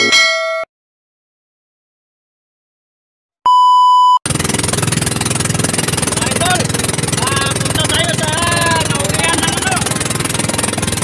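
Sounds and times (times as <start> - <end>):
test tone beep: 3.5 - 4.2
small boat engine running: 4.3 - 11.0.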